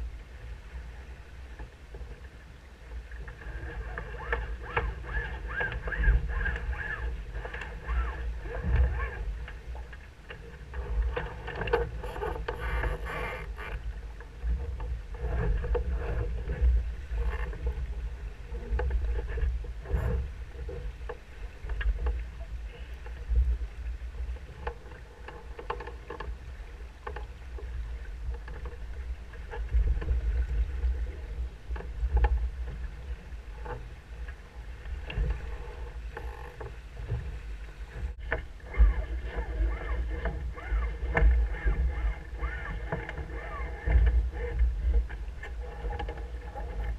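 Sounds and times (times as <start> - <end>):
water rushing along hull: 0.0 - 46.9
rigging clicks and knocks: 38.0 - 46.9.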